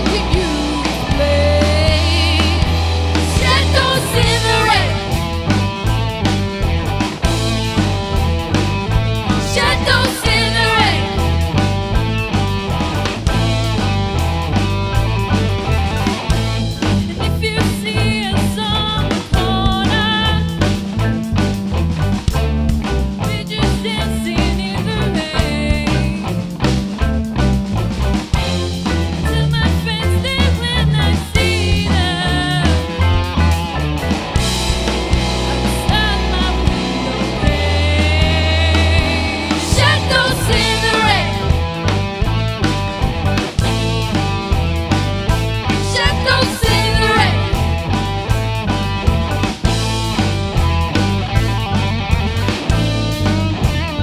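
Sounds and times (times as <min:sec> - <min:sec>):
women singing with vibrato: 0:00.0 - 0:05.2, 0:09.4 - 0:11.3, 0:29.6 - 0:32.8, 0:35.6 - 0:41.5, 0:45.8 - 0:47.6
drum kit: 0:00.0 - 0:54.0
electric guitar: 0:00.0 - 0:54.0
keyboards: 0:00.0 - 0:54.0
live rock band playing: 0:00.0 - 0:54.0.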